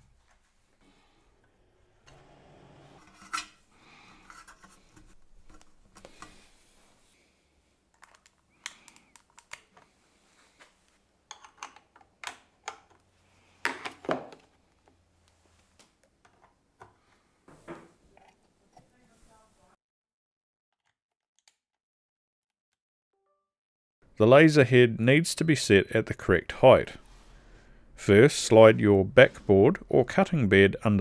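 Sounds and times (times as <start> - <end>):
cable clicking into plastic clips: 7.9 - 9.9, 11.3 - 13.1.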